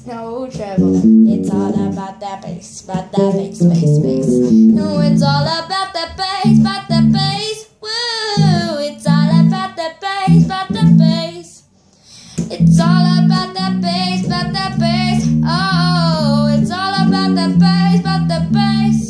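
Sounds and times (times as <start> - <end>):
girl singing: 0.0 - 11.7, 12.4 - 19.0
plucked electric bass: 0.6 - 2.1, 3.0 - 5.6, 6.4 - 7.4, 8.4 - 9.6, 10.3 - 11.3, 12.4 - 19.0.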